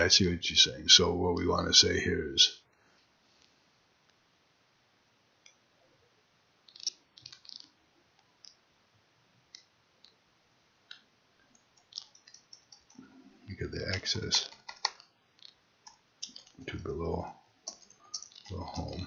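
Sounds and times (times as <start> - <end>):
mouse and keyboard clicks: 6.7 - 7.7, 11.6 - 13.0, 13.9 - 16.6.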